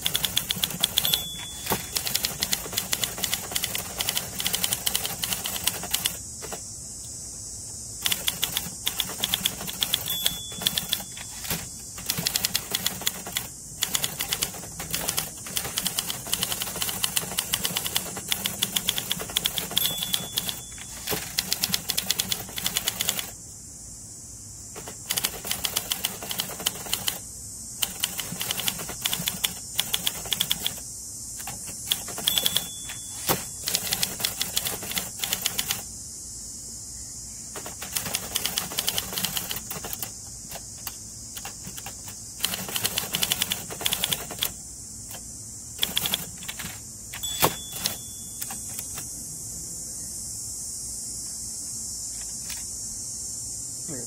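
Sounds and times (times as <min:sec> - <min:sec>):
manual typewriter typing fast: 0:00.0 - 0:06.6, 0:08.0 - 0:23.4, 0:24.8 - 0:27.2, 0:27.8 - 0:30.8, 0:31.4 - 0:35.8, 0:37.5 - 0:45.2, 0:45.8 - 0:49.0.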